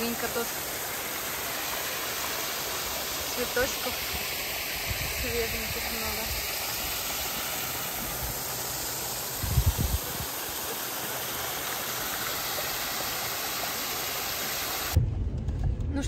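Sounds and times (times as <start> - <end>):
running water: 0.0 - 15.0.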